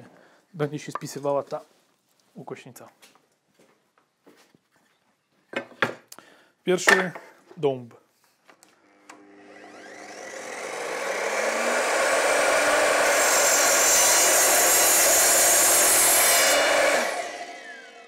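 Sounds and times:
saw motor whine: 8.9 - 18.0
saw blade cutting wood: 9.4 - 18.0.

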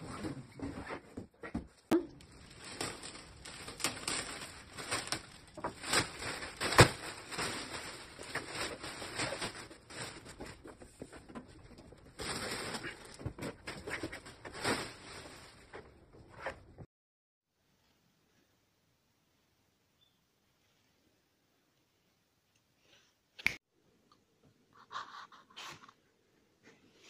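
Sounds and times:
plastic wrap crinkling and tearing: 2.1 - 10.8, 11.7 - 15.8.

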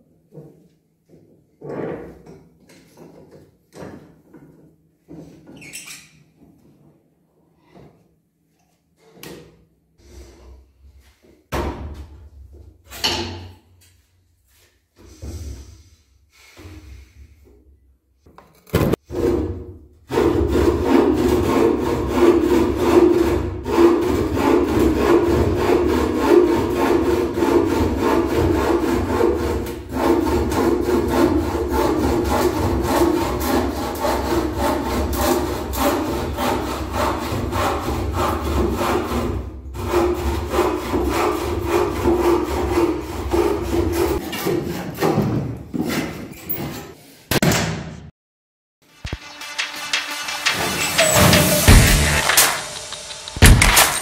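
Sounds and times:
saw cutting wooden board: 18.9 - 45.0, 49.1 - 54.0.

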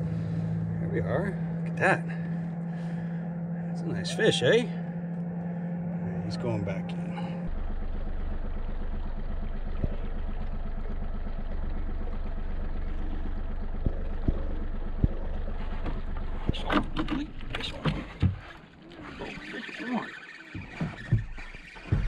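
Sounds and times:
outboard motor running: 0.0 - 22.0
knocks and clatter: 20.5 - 22.0.

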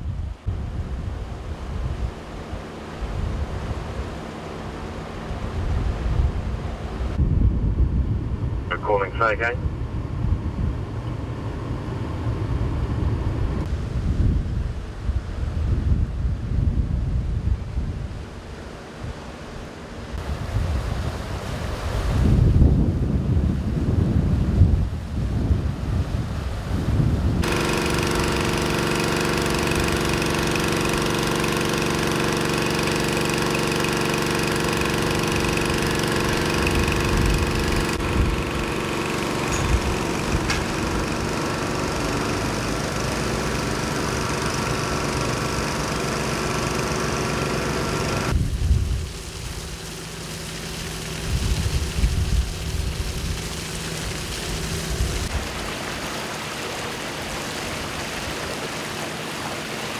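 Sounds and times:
fire truck engine: 8.7 - 9.5, 27.4 - 48.4
floodwater rushing through street: 27.4 - 59.9
small petrol water pump engine: 27.4 - 59.9
water splashing: 27.4 - 59.9.

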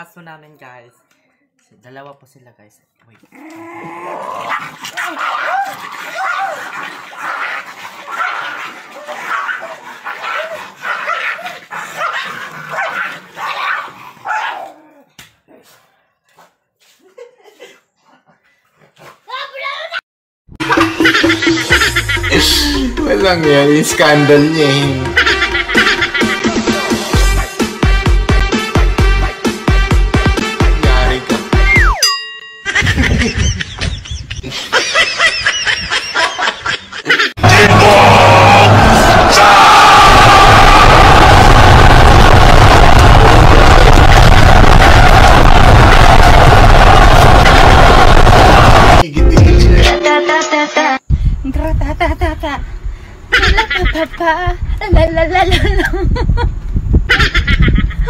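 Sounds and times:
dog barking and yelping: 4.4 - 15.1
group laughing and shrieking: 4.6 - 10.8, 20.7 - 23.0, 24.8 - 27.1, 32.7 - 49.0, 53.3 - 54.2, 57.1 - 58.0
electronic music beat: 20.6 - 32.1, 47.6 - 50.7
falling whistle-like glide: 31.7 - 32.1.

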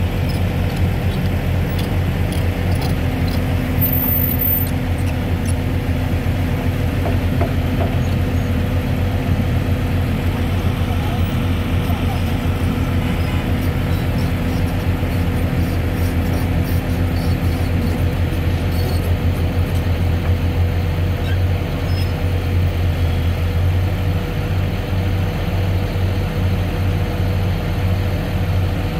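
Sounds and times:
excavator diesel engine running: 0.0 - 28.9.

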